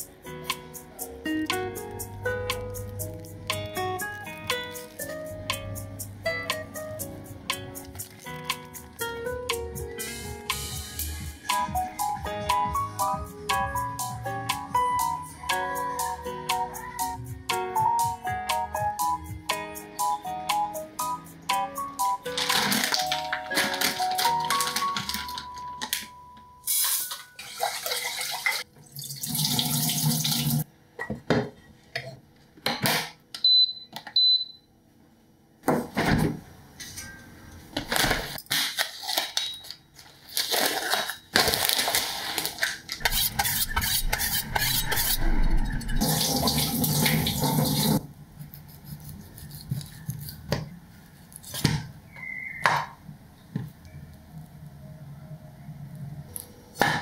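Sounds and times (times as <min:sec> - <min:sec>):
knife slitting plastic film: 0:22.3 - 0:25.5, 0:37.9 - 0:43.5
water running: 0:26.8 - 0:30.6, 0:43.0 - 0:48.0.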